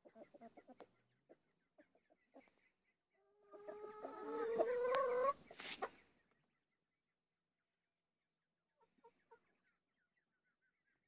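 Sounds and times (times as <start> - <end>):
chickens clucking softly: 0.0 - 6.8, 8.6 - 11.0
drawn-out chicken call: 3.2 - 6.0.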